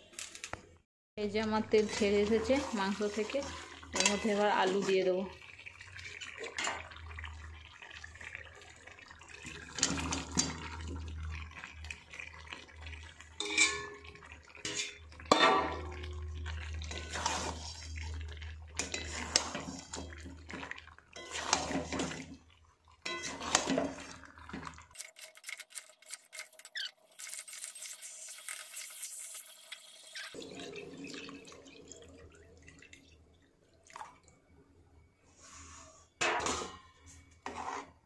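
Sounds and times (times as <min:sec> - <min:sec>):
metal spatula scraping a pan: 0:01.8 - 0:05.2, 0:13.4 - 0:15.9, 0:16.8 - 0:18.2, 0:18.8 - 0:22.3, 0:23.0 - 0:24.2, 0:35.4 - 0:38.0.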